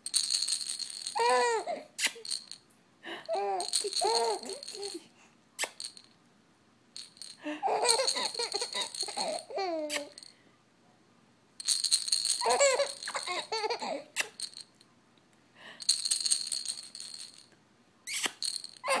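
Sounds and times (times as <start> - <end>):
rattle in stuffed toy shaken: 0.0 - 6.2, 7.0 - 10.3, 11.6 - 14.8, 15.6 - 19.0
baby laughing and squealing: 1.1 - 2.3, 3.3 - 5.0, 7.6 - 10.2, 12.4 - 14.4, 18.1 - 19.0.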